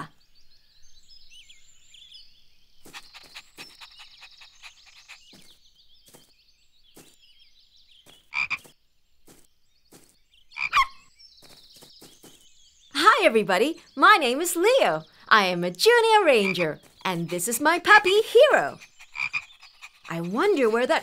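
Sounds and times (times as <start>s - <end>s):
high chirping: 2.8s - 6.3s.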